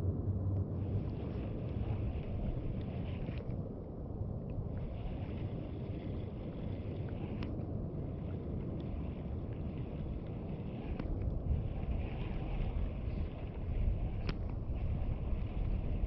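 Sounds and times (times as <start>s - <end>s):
wind buffeting microphone: 0.0s - 16.0s
faint clicks: 7.1s - 7.7s, 10.9s - 11.3s, 14.2s - 14.6s.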